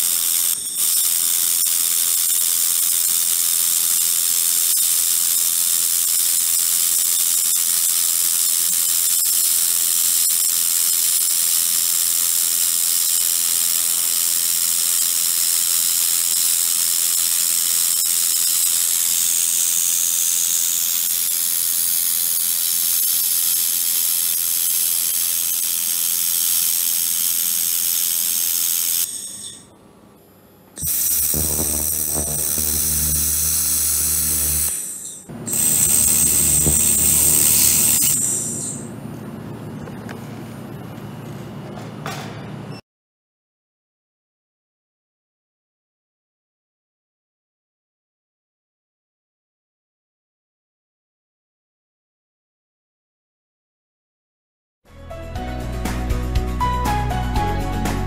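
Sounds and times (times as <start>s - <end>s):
laser welder hissing: 0.0s - 29.7s, 30.8s - 38.9s.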